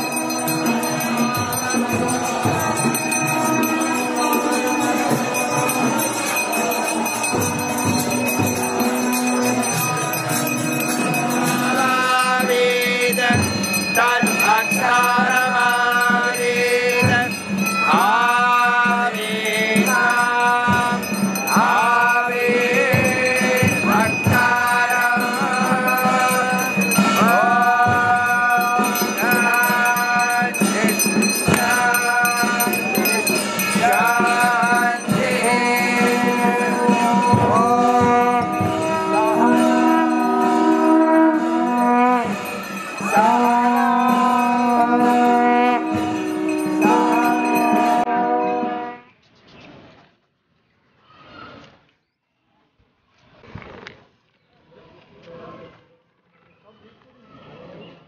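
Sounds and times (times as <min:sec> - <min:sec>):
jingling hand cymbals: 0:00.0 - 0:48.8
crowd chanting and singing: 0:00.0 - 0:48.9.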